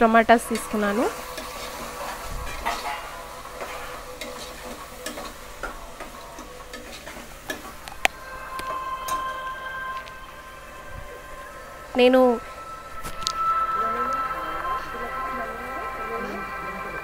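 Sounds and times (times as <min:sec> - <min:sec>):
soft frying sizzle: 0:00.0 - 0:17.0
spoon stirring and scraping pot: 0:00.5 - 0:10.4.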